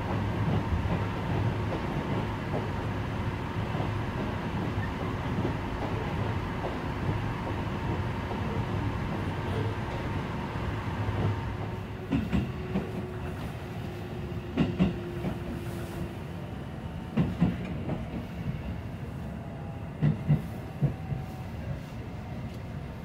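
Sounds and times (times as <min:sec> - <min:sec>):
train running gear rumble: 0:00.0 - 0:23.0.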